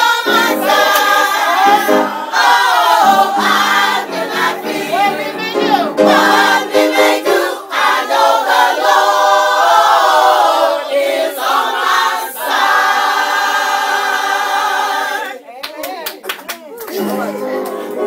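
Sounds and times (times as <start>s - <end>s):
choir singing a cappella: 0.0s - 15.4s.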